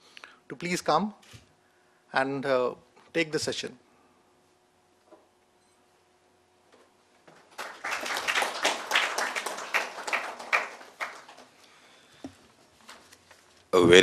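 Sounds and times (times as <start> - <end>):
audience applauding: 7.4 - 11.6.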